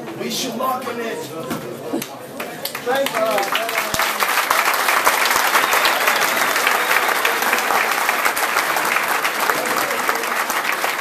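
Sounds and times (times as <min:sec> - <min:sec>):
crowd applauding: 0:02.4 - 0:11.0.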